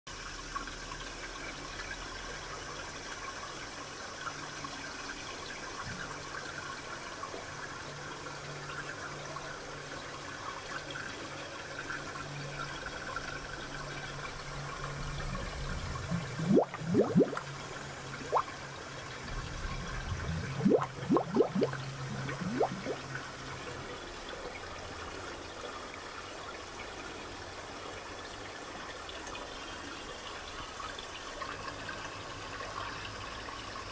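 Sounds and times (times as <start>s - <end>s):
aquarium water gurgling: 0.1s - 33.9s
steady low hum: 13.5s - 23.3s
bubbly gurgles: 13.8s - 23.4s.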